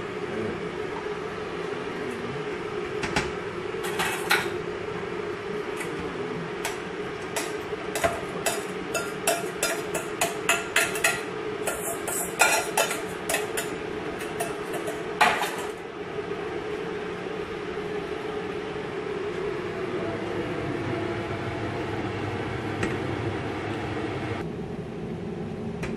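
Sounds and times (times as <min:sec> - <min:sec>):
steady hum: 0:00.0 - 0:25.9
metal utensil scraping saucepans: 0:07.4 - 0:15.8.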